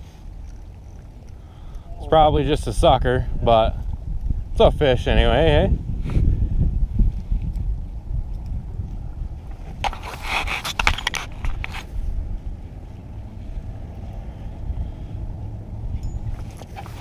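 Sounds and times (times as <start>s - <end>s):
rustling and clicks: 0.0s - 1.8s, 9.4s - 12.1s
wind rumbling on microphone: 0.0s - 17.0s.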